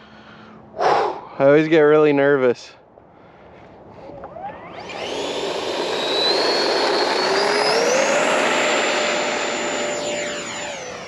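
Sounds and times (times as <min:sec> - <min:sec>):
electric ducted fans whining: 0:03.8 - 0:11.0.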